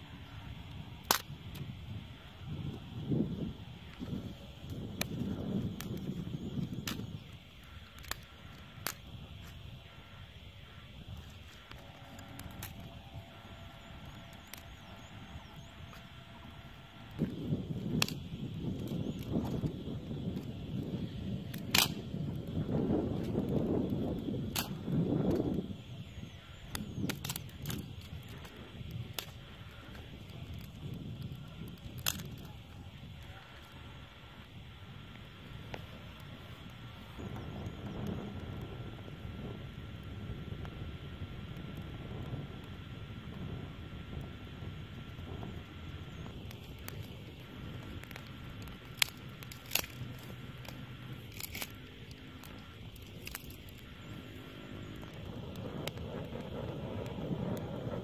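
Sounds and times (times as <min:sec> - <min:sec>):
sharp pops from fire: 0:00.0 - 0:58.0
wood fire crackling: 0:00.0 - 0:58.0
sticks snapping: 0:01.0 - 0:01.6, 0:03.9 - 0:09.6, 0:11.5 - 0:13.2, 0:14.0 - 0:16.1, 0:17.1 - 0:19.7, 0:21.5 - 0:22.4, 0:24.5 - 0:25.5, 0:26.7 - 0:30.8, 0:31.7 - 0:32.6, 0:46.4 - 0:53.9
twigs rustling: 0:02.6 - 0:34.2, 0:46.0 - 0:56.5.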